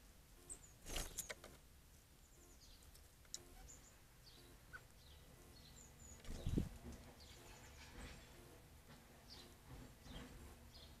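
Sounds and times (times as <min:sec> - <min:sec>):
bird wings fluttering: 0:00.8 - 0:01.4
low buffeting on microphone: 0:06.3 - 0:07.4.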